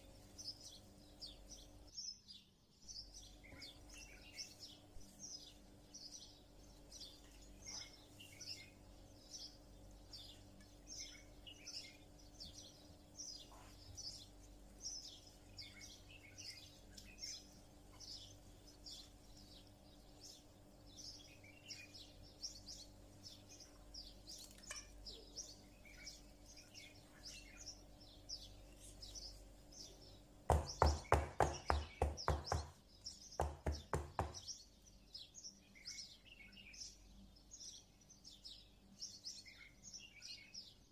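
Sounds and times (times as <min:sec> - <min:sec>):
faint steady hum: 0:00.0 - 0:40.9
small birds chirping: 0:00.0 - 0:40.9
rapid knocks: 0:30.5 - 0:32.8, 0:33.4 - 0:34.4.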